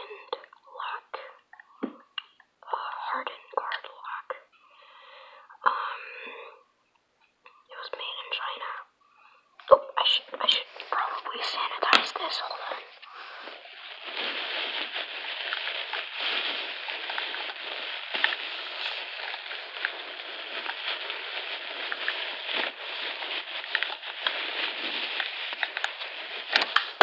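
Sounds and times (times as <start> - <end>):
hands crinkling crumpled material: 9.6 - 27.0.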